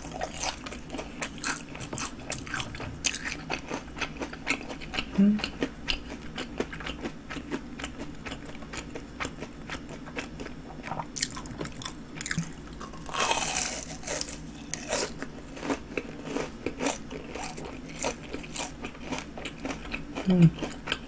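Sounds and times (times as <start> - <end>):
chewing crispy fried food: 0.0 - 21.0.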